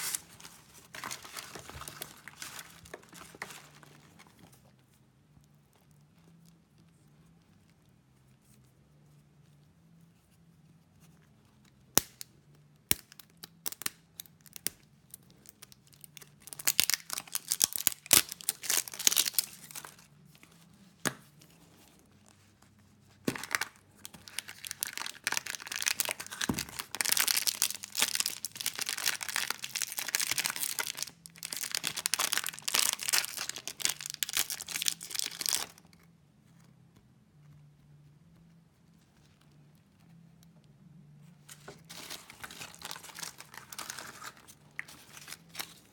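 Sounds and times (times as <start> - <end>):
wrappers tearing and crinkling: 0.0 - 4.6, 13.2 - 20.1, 23.3 - 35.9, 41.6 - 45.9.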